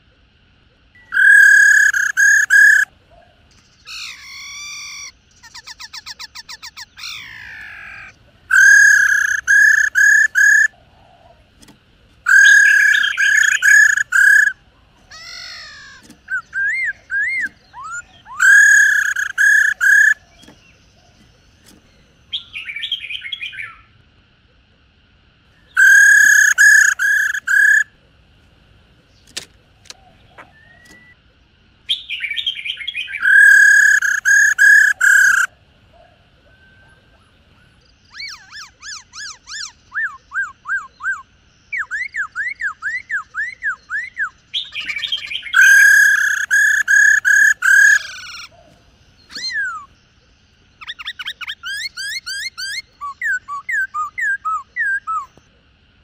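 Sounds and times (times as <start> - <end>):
birds calling repeated notes: 0.0 - 55.9
fast rattling trill: 15.5 - 20.2.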